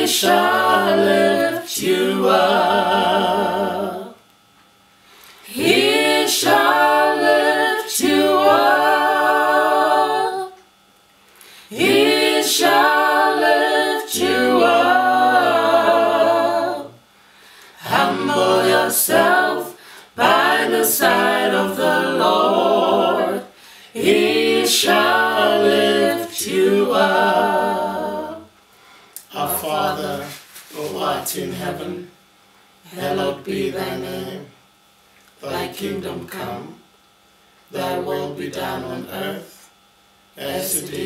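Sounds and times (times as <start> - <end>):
group singing unaccompanied: 0.0 - 4.3, 5.4 - 10.6, 11.6 - 17.1, 17.7 - 28.5, 29.3 - 32.1, 32.9 - 34.5, 35.4 - 36.8, 37.7 - 39.6, 40.3 - 41.0.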